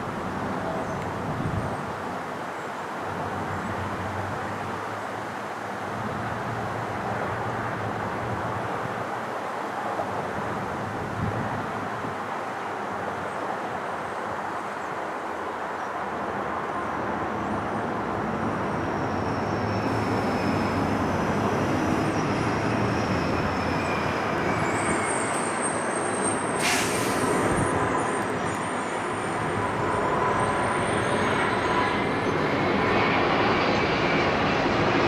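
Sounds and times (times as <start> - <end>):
higher jet whine: 14.9 - 35.0
jet engines rushing: 15.4 - 35.0.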